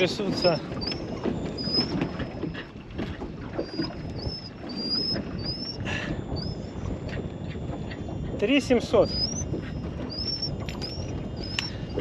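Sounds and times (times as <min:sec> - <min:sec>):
water and wind rumble: 0:00.0 - 0:12.0
bird whistling: 0:00.4 - 0:02.0, 0:03.6 - 0:06.7, 0:09.0 - 0:12.0.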